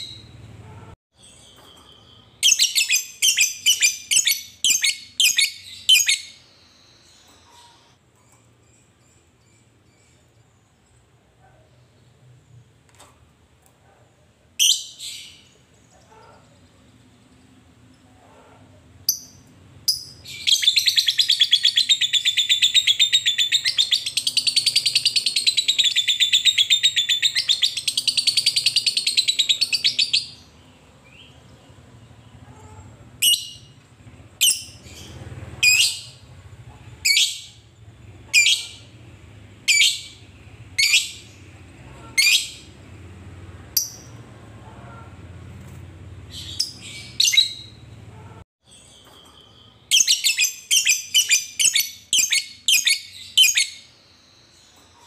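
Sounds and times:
bird sharp chirps: 0:01.2 - 0:10.2.

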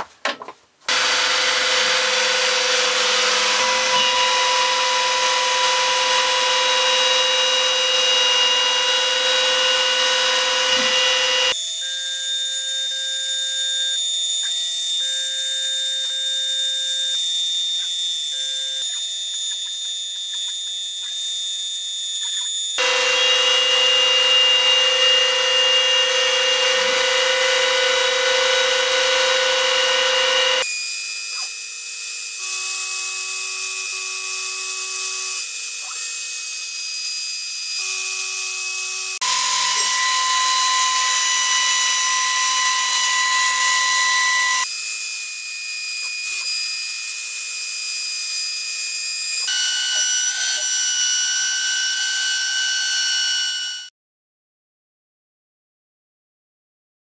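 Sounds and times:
router whining while milling wood: 0:00.9 - 0:11.8, 0:13.0 - 0:53.9.

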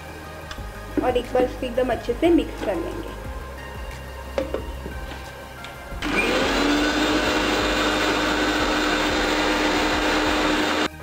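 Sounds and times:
mixer grinder blending: 0:06.0 - 0:11.0.

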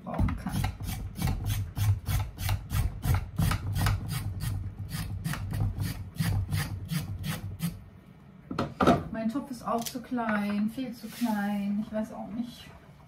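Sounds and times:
knife rasping root vegetables: 0:00.4 - 0:07.8.

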